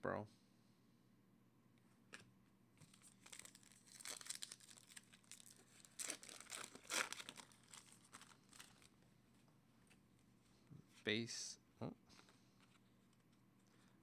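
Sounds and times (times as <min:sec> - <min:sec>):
foil wrapper crinkling: 0:02.9 - 0:09.0.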